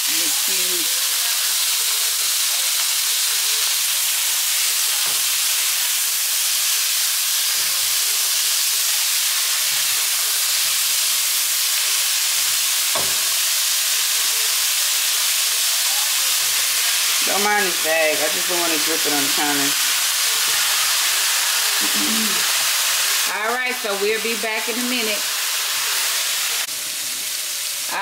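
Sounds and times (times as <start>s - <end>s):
meat and onions sizzling in a pan: 0.0s - 28.0s
tongs knocking against a pan: 12.9s - 13.3s.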